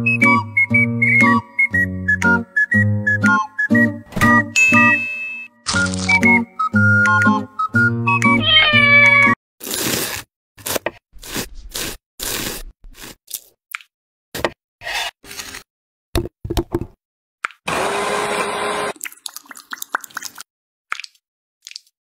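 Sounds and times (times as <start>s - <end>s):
electric food chopper running: 17.7s - 19.0s.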